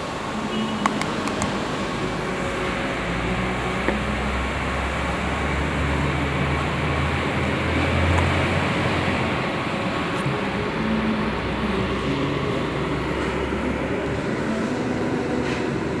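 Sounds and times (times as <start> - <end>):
steady machine hum: 0.0 - 16.0
pushbutton clicks: 0.8 - 1.5.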